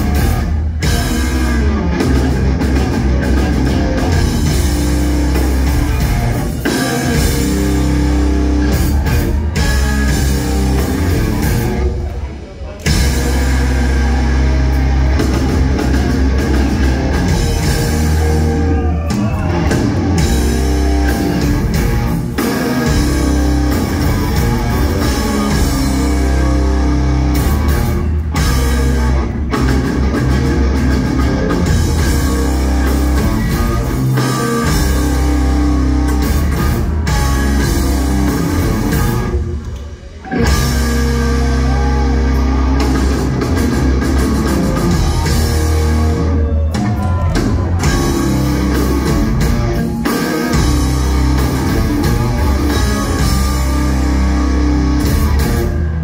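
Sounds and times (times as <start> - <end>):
bass guitar: 0.0 - 56.0
drum kit: 0.0 - 56.0
electric guitars: 0.0 - 56.0.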